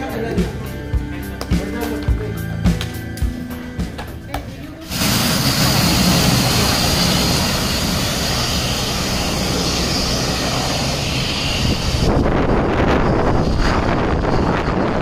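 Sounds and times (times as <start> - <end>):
turboprop airliner engines whining: 3.2 - 15.0.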